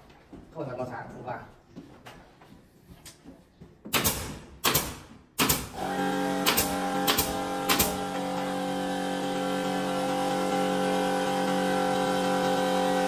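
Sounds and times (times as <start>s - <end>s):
nail gun shots: 3.9s - 8.1s
air compressor motor hum: 5.6s - 13.0s.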